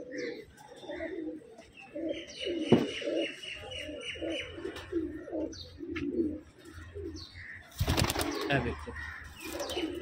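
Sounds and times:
pigeons cooing: 0.0s - 10.0s.

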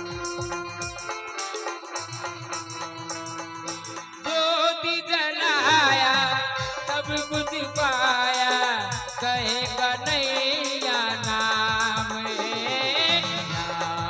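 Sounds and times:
hand drum strokes: 0.0s - 4.3s
wavering devotional melody: 0.0s - 14.0s.

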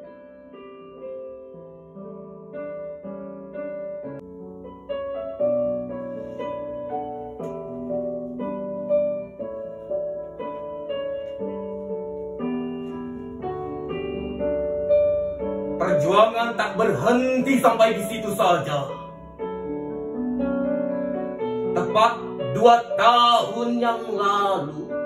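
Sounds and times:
slow piano music: 0.0s - 25.0s.

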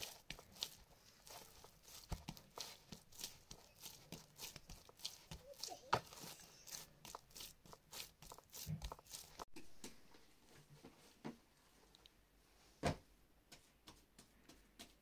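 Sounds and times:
hands kneading dough: 0.0s - 10.2s.

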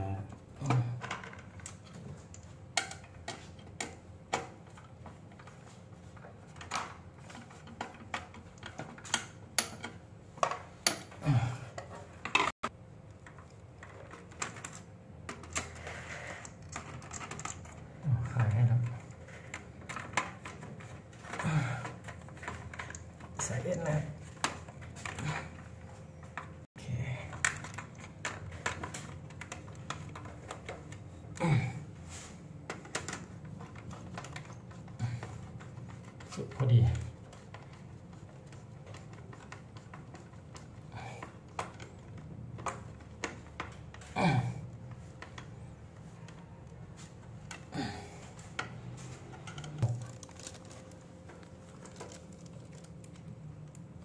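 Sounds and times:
light clicks of wires and parts: 32.2s - 54.0s.

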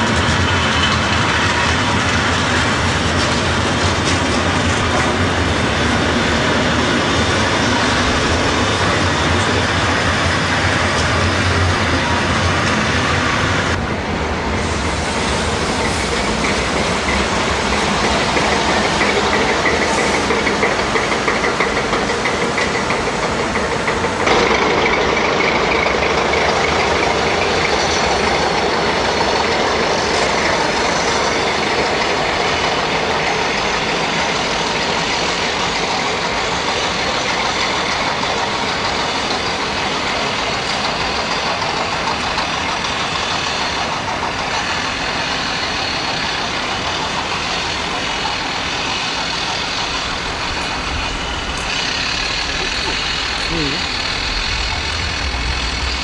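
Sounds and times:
diesel locomotive engine running: 0.0s - 56.0s.

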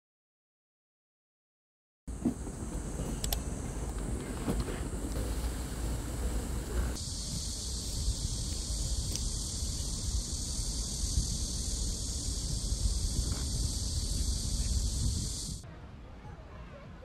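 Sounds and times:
wind rumbling on microphone: 2.1s - 15.6s
high-pitched insect drone: 6.9s - 15.6s.

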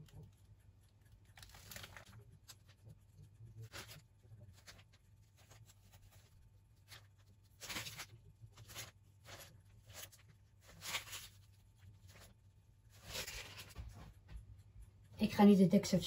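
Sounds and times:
faint low hum: 0.0s - 16.0s
piping bag rustling: 1.3s - 14.1s.

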